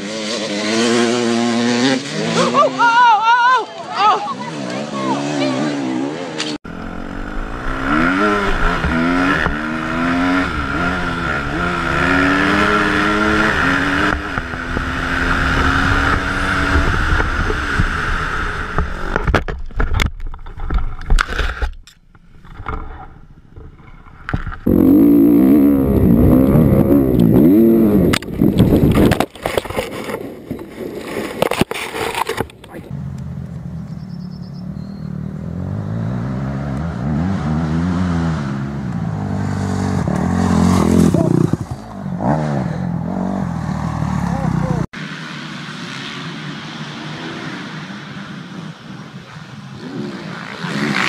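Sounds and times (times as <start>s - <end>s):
dirt bike engine revving: 0.0s - 3.0s, 4.2s - 19.2s, 24.6s - 30.2s, 34.6s - 48.8s, 49.4s - 51.0s
wind noise: 7.0s - 24.7s, 25.6s - 32.9s.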